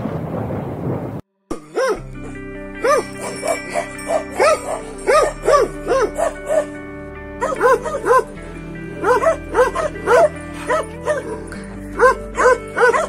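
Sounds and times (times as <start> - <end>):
background music with drone: 1.6 - 13.0
dog barking: 2.8 - 6.8, 7.4 - 13.0.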